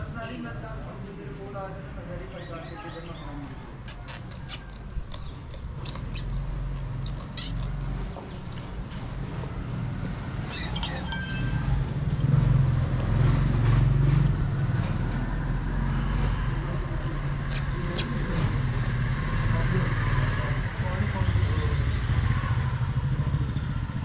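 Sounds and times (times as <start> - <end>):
low rumble of street traffic: 0.0 - 24.0
hand tools clicking on leather: 3.9 - 8.7.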